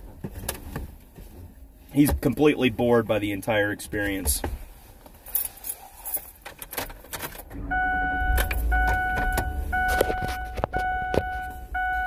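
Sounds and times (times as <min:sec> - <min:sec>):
car engine starting: 0:06.7 - 0:12.0
dashboard warning chime: 0:07.6 - 0:12.0.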